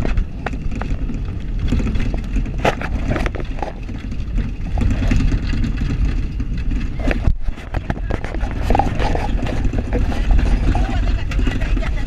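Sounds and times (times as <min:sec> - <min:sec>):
engine and tyres rumbling: 0:00.0 - 0:12.0
vehicle body rattling: 0:00.0 - 0:12.0.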